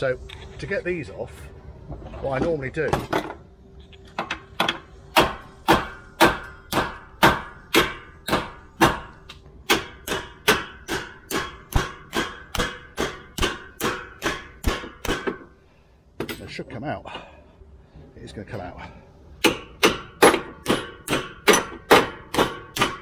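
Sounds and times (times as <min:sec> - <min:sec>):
hammer ringing on steel: 0:05.2 - 0:15.4.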